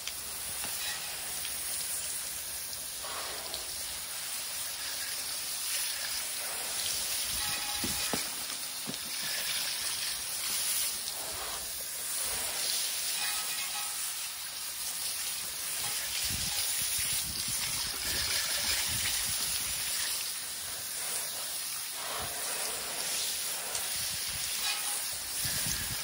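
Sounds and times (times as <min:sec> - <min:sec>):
water spattering: 0:00.0 - 0:26.0
electric scrub brush scrubbing: 0:21.9 - 0:25.8.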